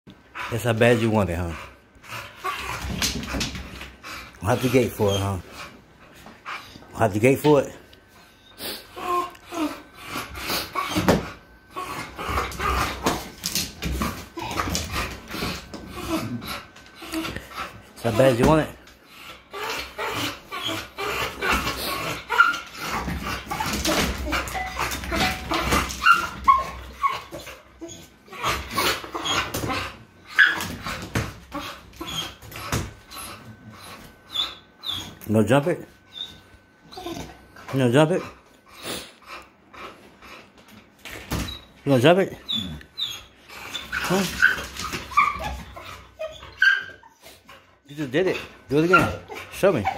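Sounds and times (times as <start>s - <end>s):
young dog whining: 8.4s - 13.3s, 19.2s - 35.2s, 36.0s - 37.7s, 42.4s - 47.6s.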